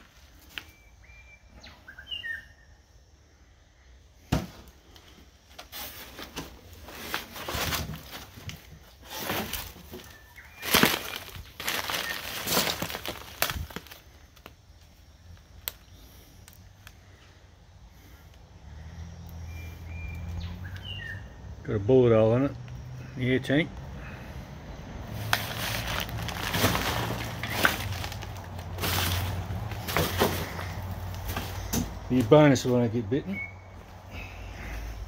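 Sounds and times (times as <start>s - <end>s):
faint bird chirps: 0.4s - 4.0s, 17.0s - 21.4s, 33.2s - 35.0s
footsteps crunching through dry grass: 9.1s - 14.0s, 25.2s - 32.4s.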